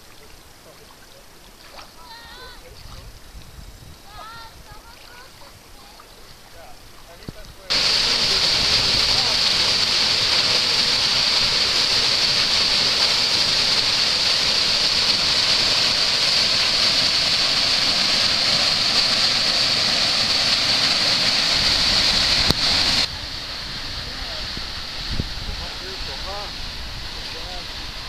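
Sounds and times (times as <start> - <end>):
waterfall rushing: 7.6 - 28.0.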